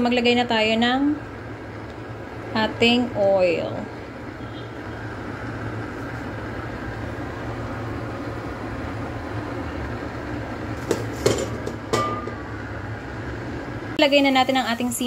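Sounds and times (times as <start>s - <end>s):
gas stove rumble: 0.0s - 15.0s
wok knocking on burner grate: 10.8s - 12.6s.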